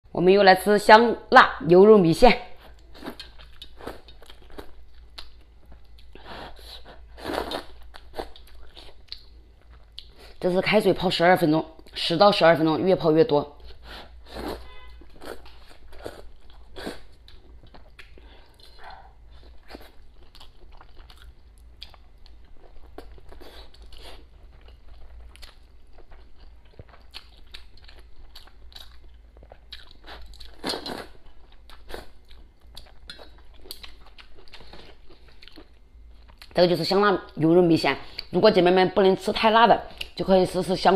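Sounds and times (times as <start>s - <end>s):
chewing with wet mouth clicks: 2.8s - 6.2s, 7.4s - 10.2s, 15.2s - 36.6s.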